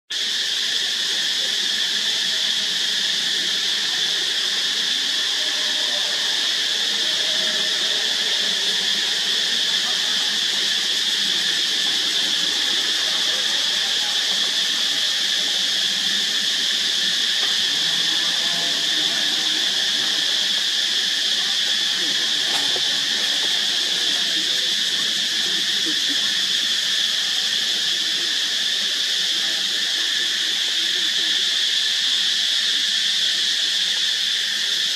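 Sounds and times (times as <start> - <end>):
insect chorus drone: 0.1 - 34.9.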